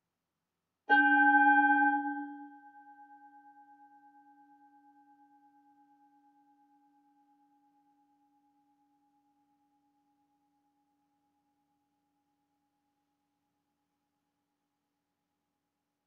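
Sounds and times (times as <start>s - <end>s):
singing bowl ringing: 0.9s - 3.4s.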